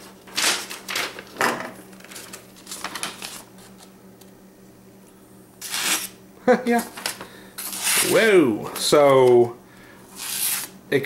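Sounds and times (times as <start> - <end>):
paper rustling: 1.9 - 3.9.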